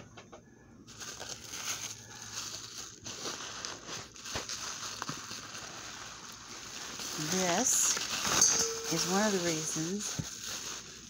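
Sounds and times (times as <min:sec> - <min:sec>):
bubble wrap crinkling and rustling: 0:00.8 - 0:11.0.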